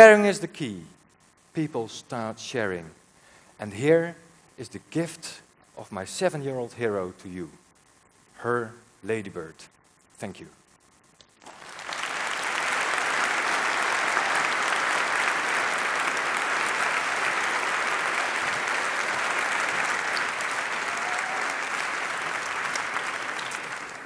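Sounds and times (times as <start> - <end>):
large audience applauding: 11.4 - 24.0.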